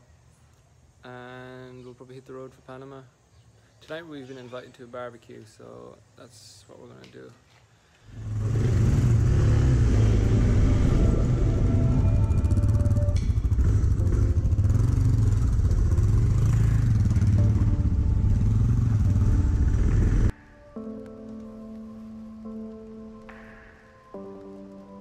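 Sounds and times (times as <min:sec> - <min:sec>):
motorcycle engine rumble: 0:08.1 - 0:20.3.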